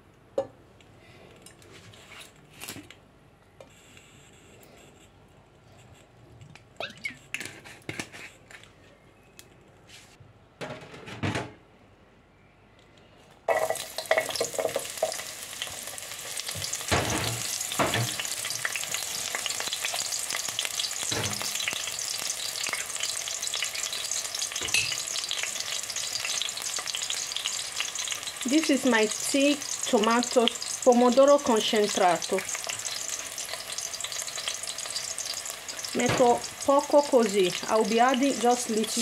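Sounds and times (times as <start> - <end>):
onion sizzling in hot oil: 13.5 - 39.0.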